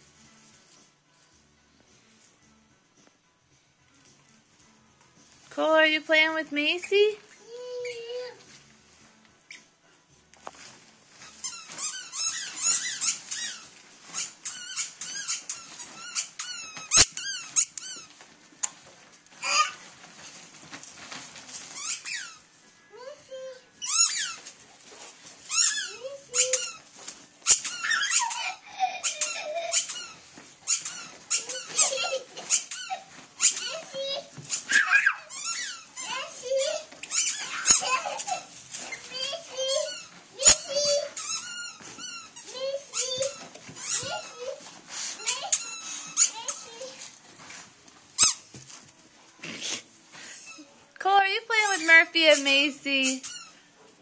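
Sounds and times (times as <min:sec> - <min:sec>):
dog whining and squealing: 0:11.5 - 0:18.1, 0:23.8 - 0:47.0.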